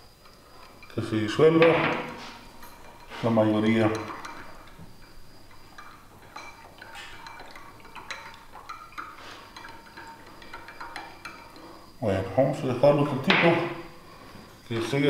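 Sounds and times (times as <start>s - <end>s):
utensil clinking against glass: 0.6s - 12.0s.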